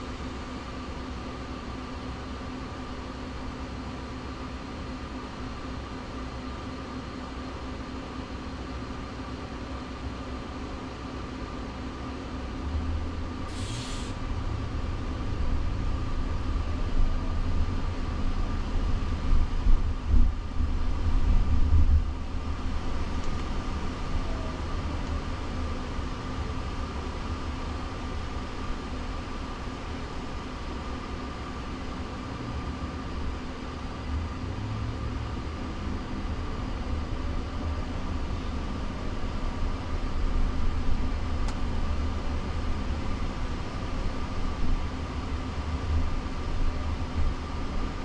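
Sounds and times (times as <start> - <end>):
road noise rumble inside car: 0.0 - 48.0
short hiss: 13.5 - 14.2.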